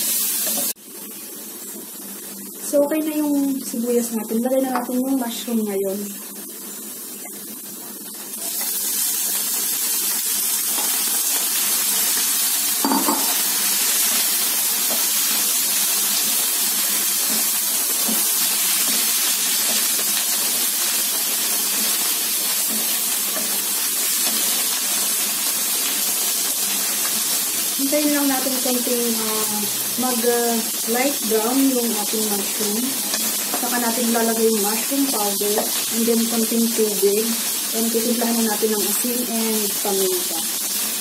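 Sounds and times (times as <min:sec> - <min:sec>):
mushrooms sizzling in a frying pan: 0:00.0 - 0:41.0
wooden spatula stirring in a pan: 0:13.9 - 0:25.3.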